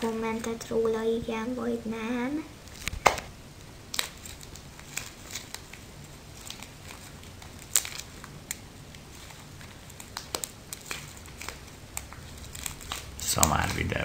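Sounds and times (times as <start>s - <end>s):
slime sticky clicks and crackles: 3.9s - 5.8s, 6.4s - 13.9s.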